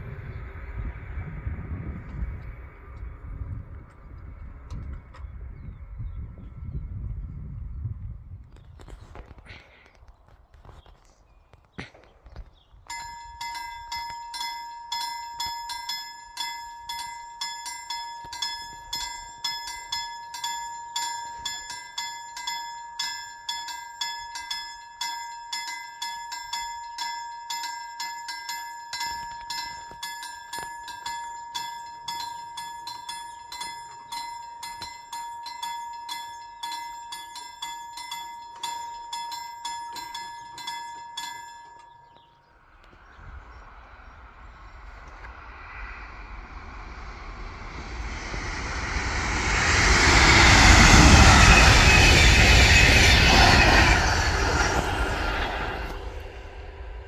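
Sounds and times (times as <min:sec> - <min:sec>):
level-crossing warning bell: 0:12.9 - 0:42.7, 0:46.8 - 0:57.0.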